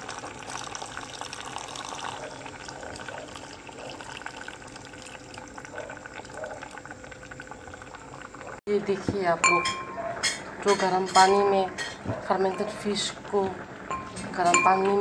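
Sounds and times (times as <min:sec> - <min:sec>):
liquid pouring and splashing: 0:00.0 - 0:08.6
broth boiling: 0:00.0 - 0:15.0.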